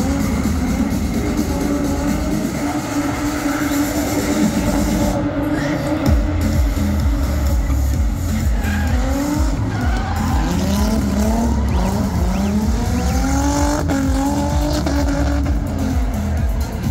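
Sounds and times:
car engines revving: 0.0s - 16.9s
music with heavy bass beat: 0.0s - 16.9s.

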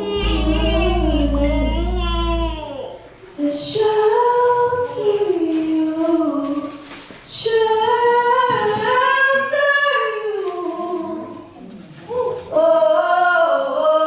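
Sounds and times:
woman singing long notes: 0.0s - 2.9s.

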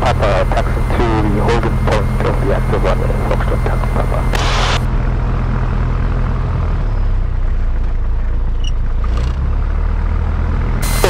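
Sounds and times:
aircraft piston engine idling: 0.0s - 4.8s.

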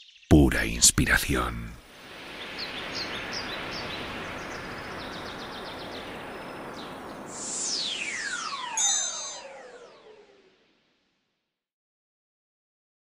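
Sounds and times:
stream running: 1.4s - 9.8s
birds chirping: 2.2s - 10.2s
downward pitch sweep effect: 7.3s - 11.0s.

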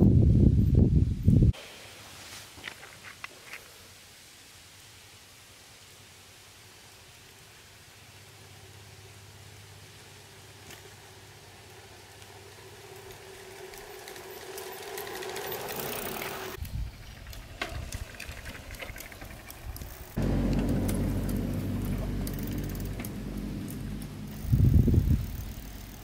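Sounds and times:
bicycle tyres on asphalt: 2.0s - 26.0s
bicycle drivetrain ticking: 8.2s - 26.0s
loud steady sound: 20.2s - 25.4s.

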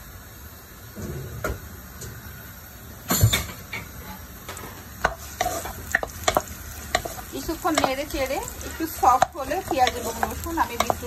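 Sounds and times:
vegetables sizzling in frying pan: 1.8s - 11.0s
utensil scraping and knocking on pan: 4.4s - 11.0s.

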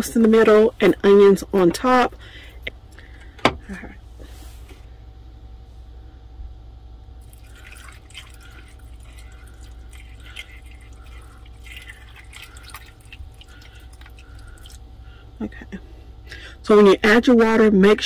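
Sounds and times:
water trickling and splashing: 7.2s - 14.8s.

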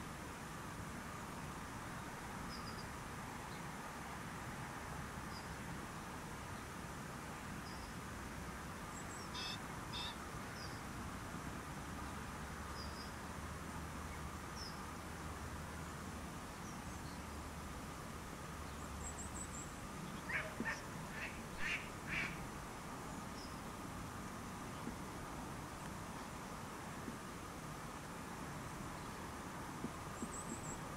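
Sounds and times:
outdoor background hiss: 0.0s - 30.9s
small birds chirping: 8.8s - 10.8s, 18.6s - 22.4s, 30.1s - 30.9s
duck quacking: 20.3s - 22.4s.

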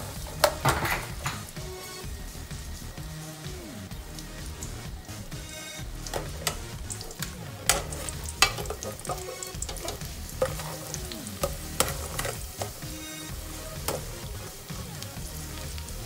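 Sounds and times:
garlic sizzling in hot oil: 0.0s - 16.0s
metal turner scraping a pot: 6.0s - 12.8s.

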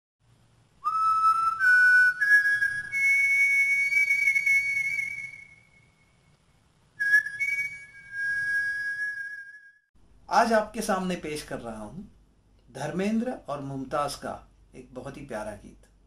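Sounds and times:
whistle-like jingle notes: 7.0s - 9.9s.

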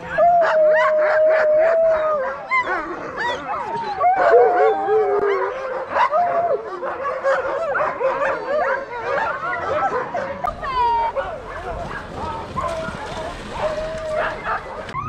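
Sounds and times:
huskies yipping barking and howling: 0.0s - 15.0s.

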